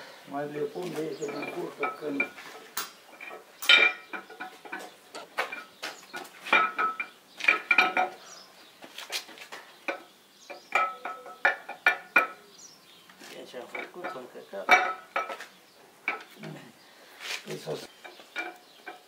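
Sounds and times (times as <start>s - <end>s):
metal clinking on metal: 1.2s - 5.8s, 6.5s - 8.2s, 9.9s - 12.4s, 13.7s - 16.4s, 18.0s - 19.0s.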